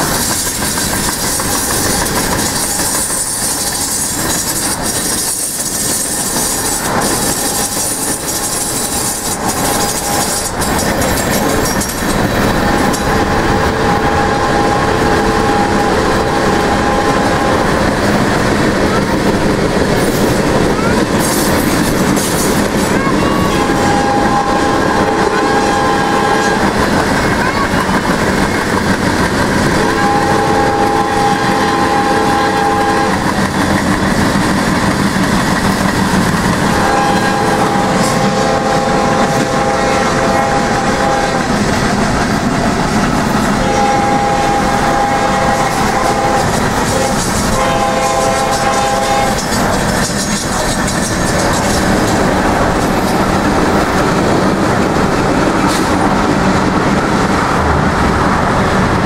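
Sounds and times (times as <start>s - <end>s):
locomotive air horn blasts: 12.7s - 17.9s, 23.2s - 26.9s, 29.8s - 33.3s, 36.7s - 41.6s, 43.6s - 49.5s
car road and wind noise: 50.6s - 59.0s.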